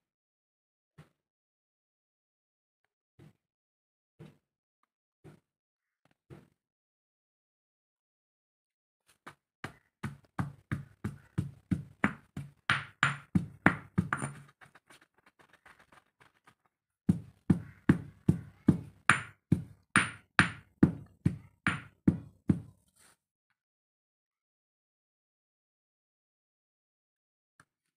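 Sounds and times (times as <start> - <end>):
stone pestle pounding in mortar: 9.7 - 14.5, 17.1 - 22.7.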